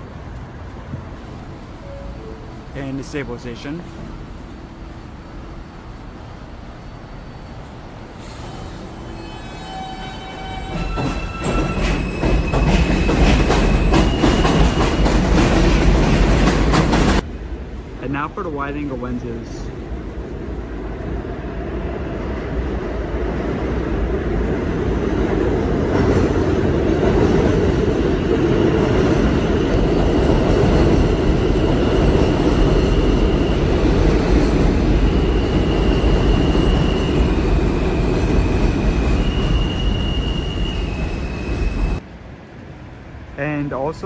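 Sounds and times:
train running on steel viaduct: 0:00.0 - 0:44.0
high-pitched wheel squeals: 0:08.3 - 0:15.3, 0:35.0 - 0:42.0.

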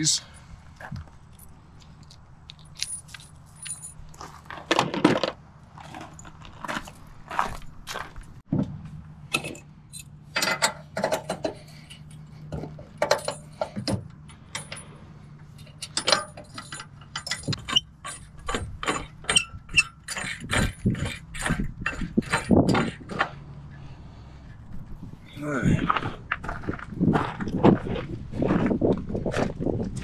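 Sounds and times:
keys jangling: 0:01.3 - 0:04.4, 0:09.9 - 0:14.9.

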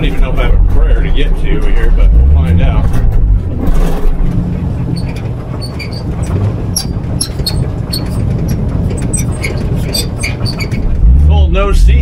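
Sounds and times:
vehicle engine and road rumble: 0:00.0 - 0:12.0
small rattles and ticks: 0:04.9 - 0:11.0.

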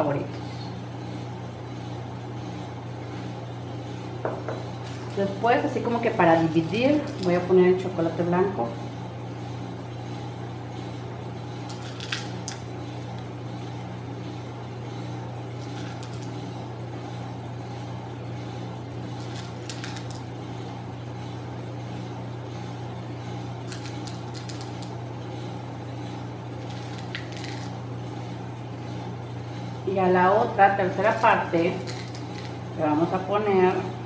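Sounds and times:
chocolate chips scattered by hand: 0:04.8 - 0:05.2, 0:06.4 - 0:07.5, 0:11.7 - 0:12.6, 0:15.6 - 0:16.4, 0:19.2 - 0:20.2, 0:23.7 - 0:24.9, 0:26.6 - 0:27.8, 0:31.8 - 0:32.6.

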